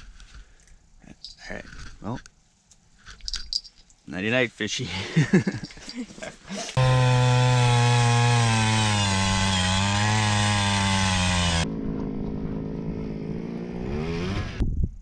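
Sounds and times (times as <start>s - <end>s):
power ice auger running: 6.7s - 11.6s.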